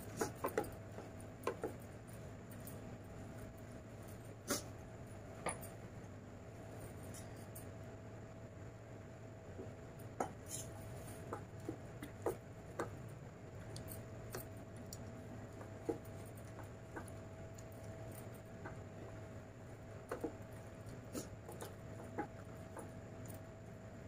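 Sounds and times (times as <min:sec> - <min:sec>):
faint steady hum: 0:00.0 - 0:24.0
fingers squishing food on steel plate: 0:10.2 - 0:23.5
chewing: 0:13.5 - 0:19.3.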